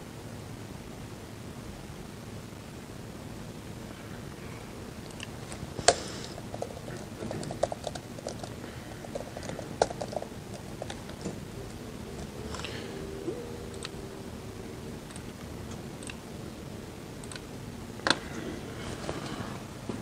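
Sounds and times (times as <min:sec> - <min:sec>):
computer keyboard typing: 0:05.0 - 0:12.8, 0:13.6 - 0:14.2, 0:14.8 - 0:16.4, 0:17.1 - 0:18.2.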